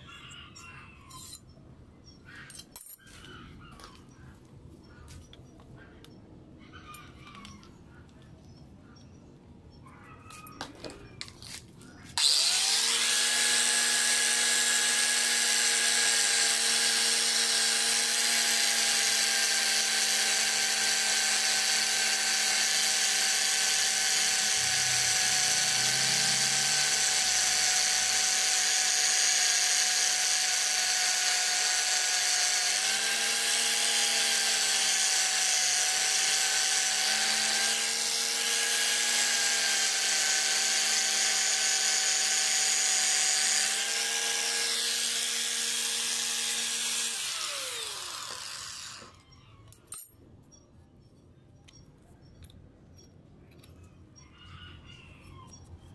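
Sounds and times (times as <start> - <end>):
angle grinder motor whine: 11.4 - 49.2.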